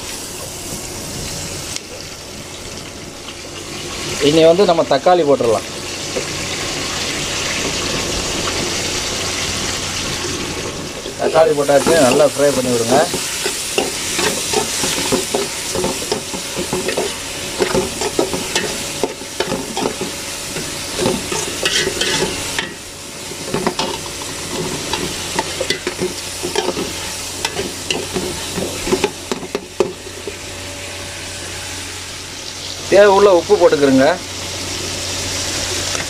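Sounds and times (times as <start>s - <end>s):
vegetables sizzling in oil: 0.0s - 36.0s
metal spoon scraping pot: 11.2s - 22.8s, 23.4s - 30.4s.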